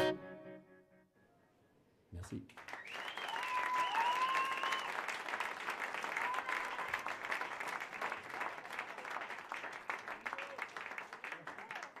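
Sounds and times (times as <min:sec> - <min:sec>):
audience applauding: 0:02.5 - 0:12.0.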